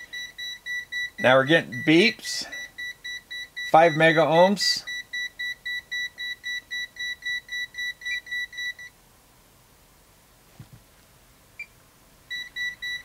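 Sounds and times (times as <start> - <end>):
multimeter warning beeps: 0.0 - 9.0, 12.3 - 13.0.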